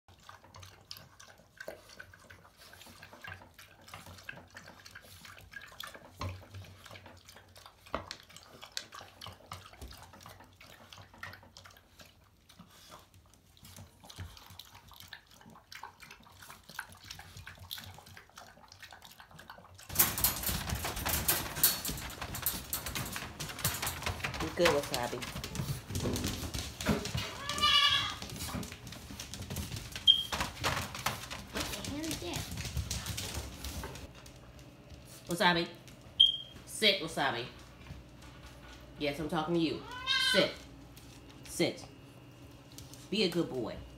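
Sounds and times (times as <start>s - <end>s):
dogs lapping water: 0.1s - 36.4s
rustling and clattering: 19.9s - 35.2s.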